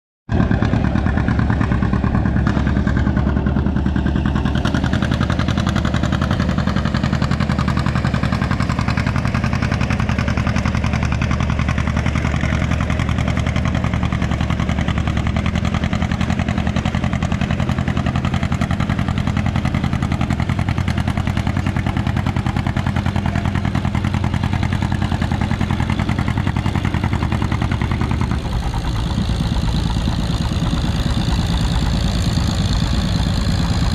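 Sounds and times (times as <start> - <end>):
tractor engine running under load: 0.3 - 33.9.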